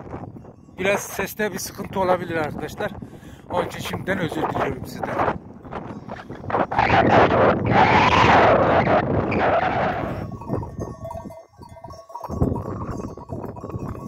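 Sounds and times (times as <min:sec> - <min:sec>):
sheep bells clinking: 0:00.0 - 0:06.6, 0:09.9 - 0:14.0
wind buffeting microphone: 0:00.0 - 0:14.0.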